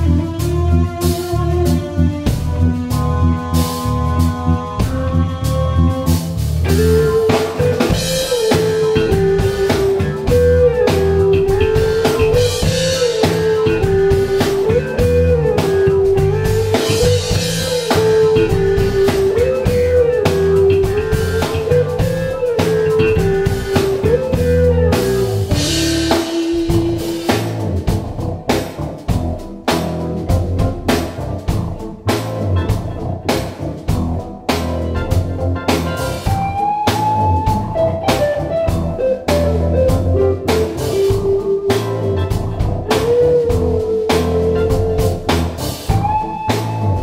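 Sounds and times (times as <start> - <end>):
bass guitar: 0.0 - 47.0
drums and cymbals: 0.0 - 47.0
electric guitar: 0.0 - 47.0
keyboards: 0.0 - 47.0.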